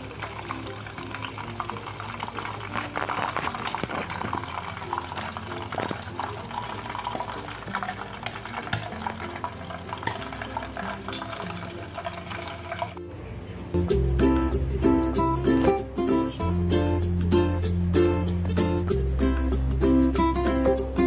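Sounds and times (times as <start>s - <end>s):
meat deep-frying in hot oil: 0.0s - 13.0s
background music: 0.0s - 21.0s.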